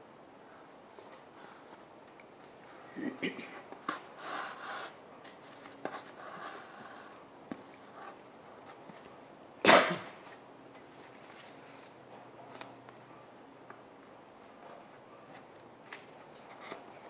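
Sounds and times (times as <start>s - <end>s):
person coughing: 2.9s - 3.6s, 9.6s - 10.2s.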